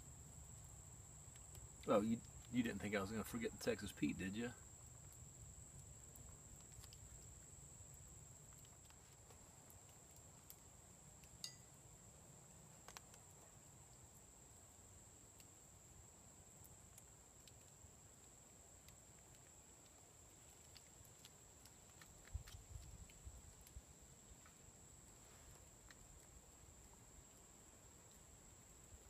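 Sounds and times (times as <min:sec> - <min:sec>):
faint insect drone: 0:00.0 - 0:29.0
faint clicks: 0:04.9 - 0:07.5, 0:08.4 - 0:11.6, 0:12.8 - 0:14.0, 0:16.6 - 0:28.6.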